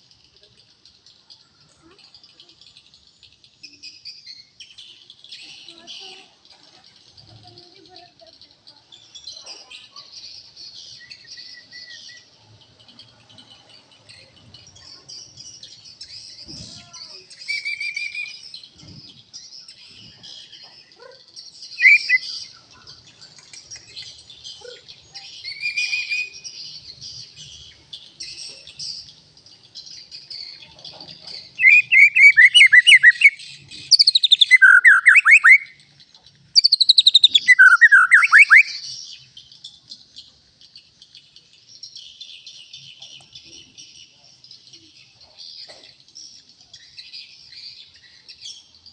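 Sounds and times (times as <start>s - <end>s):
bird song: 0.0s - 48.9s.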